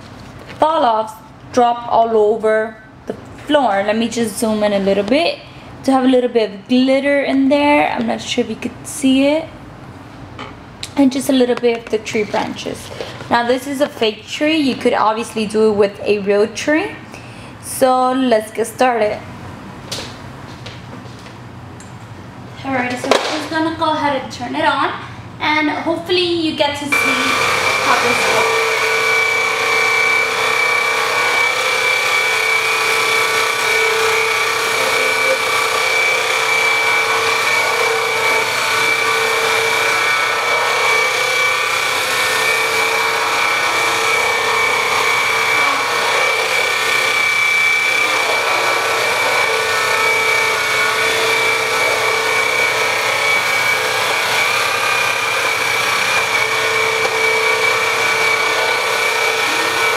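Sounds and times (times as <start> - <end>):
sweeper motor whine: 26.9 - 59.9.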